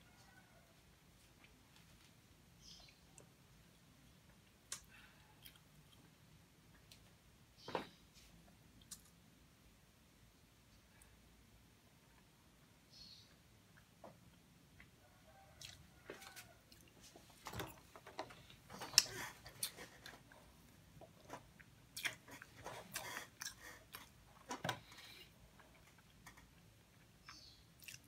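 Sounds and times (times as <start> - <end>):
person chewing cake: 4.7 - 7.0, 15.6 - 17.0, 18.4 - 24.4, 25.6 - 28.0.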